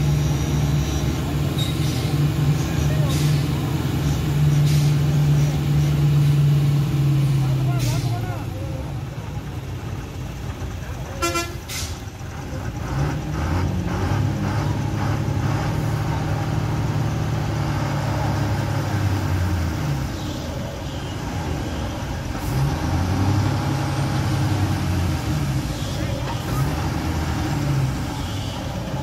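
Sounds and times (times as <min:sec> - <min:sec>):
lorry diesel engine under load: 0:00.0 - 0:29.0.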